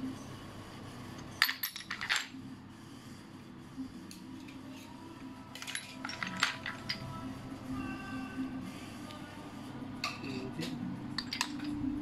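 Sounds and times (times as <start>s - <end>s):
metal sockets clinking: 11.2s - 11.8s.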